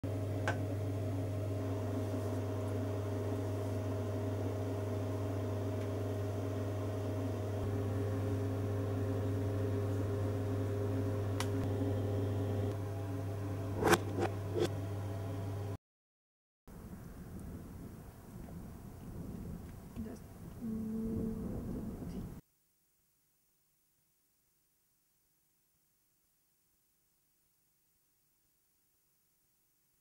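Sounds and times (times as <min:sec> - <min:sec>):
steady low hum: 0:00.1 - 0:15.8.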